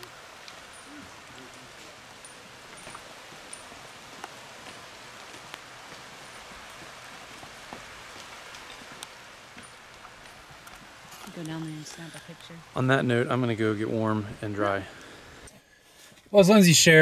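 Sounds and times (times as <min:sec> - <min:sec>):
steady rain falling: 0:00.0 - 0:17.0.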